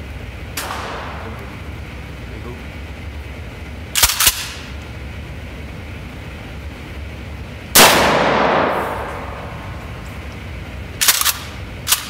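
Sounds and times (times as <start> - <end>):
shotgun blast with echo: 0.6 - 1.9, 7.8 - 10.0.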